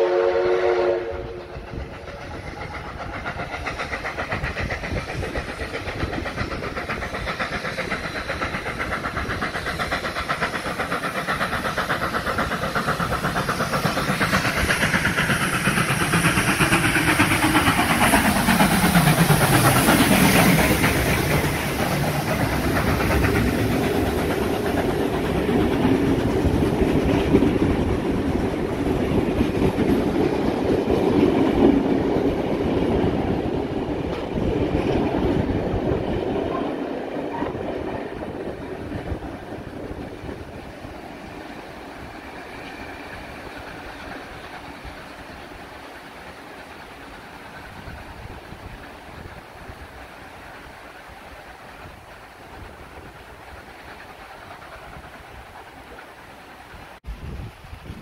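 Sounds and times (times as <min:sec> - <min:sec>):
steam whistle: 0:00.0 - 0:01.5
steam locomotive passing: 0:00.0 - 0:58.0
train wheels clattering: 0:00.4 - 0:57.0.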